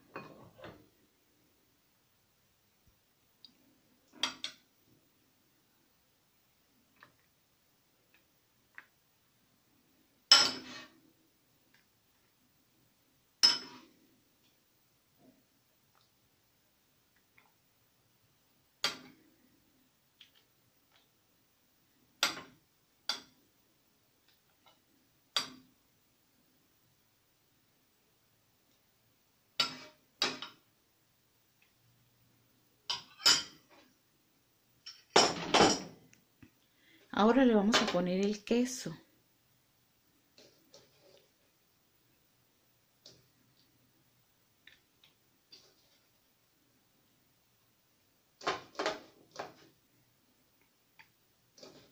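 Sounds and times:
metal spoon clinking on dishes: 10.3 - 10.8, 13.4 - 13.8, 32.9 - 33.6.

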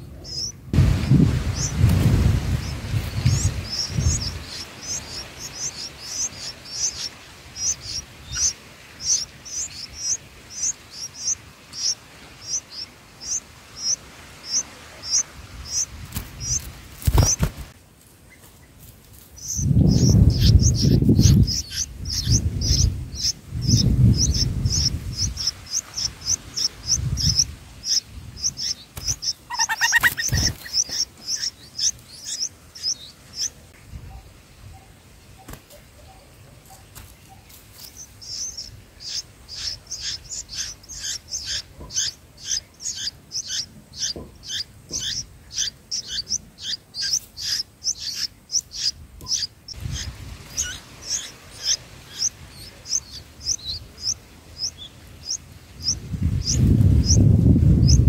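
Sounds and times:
low rumbling: 0.0 - 6.8
lower falling bird call: 0.0 - 17.7, 19.4 - 33.7, 37.3 - 58.0
nestlings begging chirps: 0.0 - 17.7, 19.4 - 58.0.

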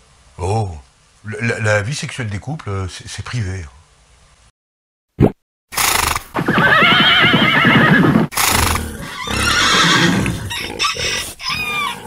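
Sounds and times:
horse whinny: 5.8 - 12.0.

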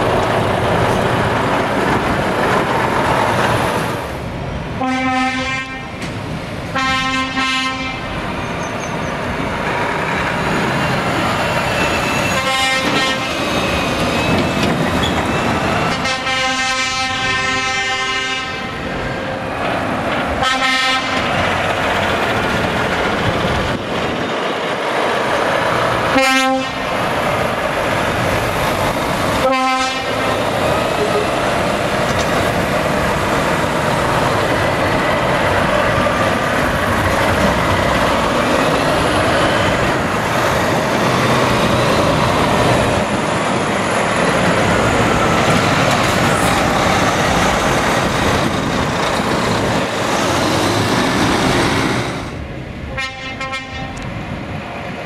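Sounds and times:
truck air horn blasts: 4.8 - 5.9, 6.8 - 8.0, 12.4 - 13.4, 15.9 - 18.7, 20.4 - 21.2, 26.2 - 26.8, 29.4 - 30.2, 52.9 - 53.9.

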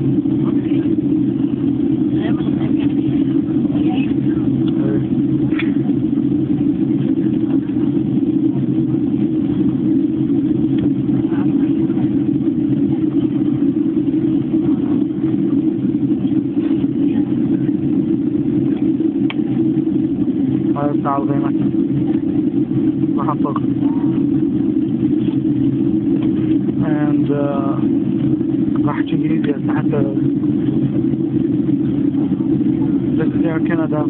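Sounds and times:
airplane cabin drone: 0.0 - 34.0.

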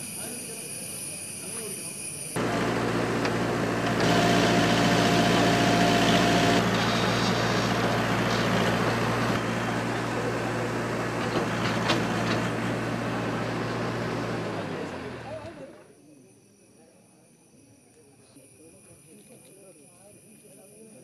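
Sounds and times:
steady whine: 2.2 - 16.9
excavator diesel engine running: 2.4 - 15.8.

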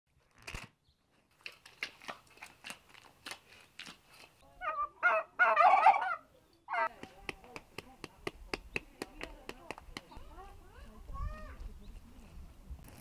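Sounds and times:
turkeys gobbling: 4.6 - 6.9.

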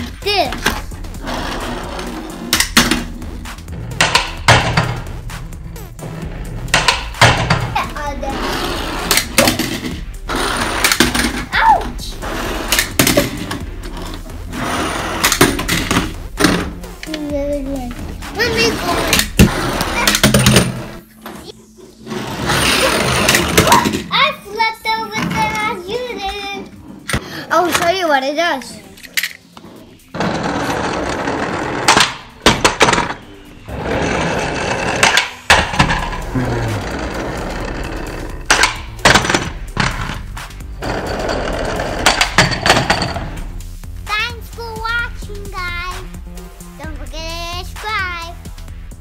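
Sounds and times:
toy cars rolling on hard surface: 8.3 - 11.4, 12.2 - 16.1, 18.5 - 24.1, 29.1 - 43.4.

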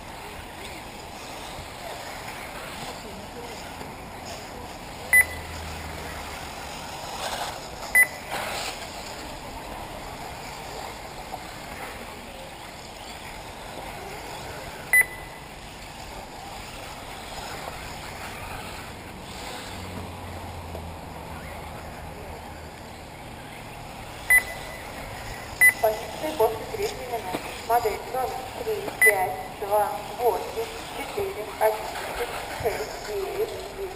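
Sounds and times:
outdoor background noise: 0.0 - 33.9
short high electronic beeps: 5.1 - 5.5, 8.0 - 8.2, 14.9 - 15.4, 24.3 - 24.8, 25.6 - 25.8.

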